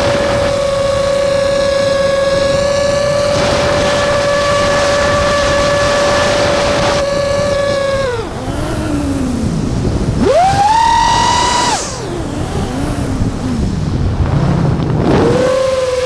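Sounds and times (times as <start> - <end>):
drone motors whining: 0.0 - 16.0.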